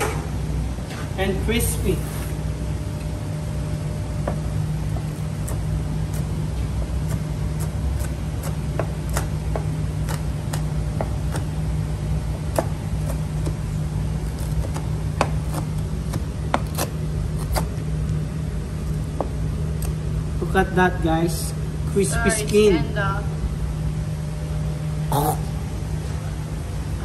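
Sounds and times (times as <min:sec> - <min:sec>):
low machine hum: 0:00.0 - 0:27.0
knife crunching through crispy skin: 0:05.0 - 0:11.7, 0:12.4 - 0:18.2.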